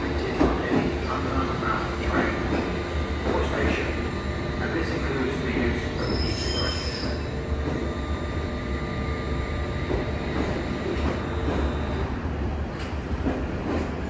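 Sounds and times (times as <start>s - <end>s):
train low rumble: 0.0s - 14.0s
train wheel squeal: 5.7s - 7.3s.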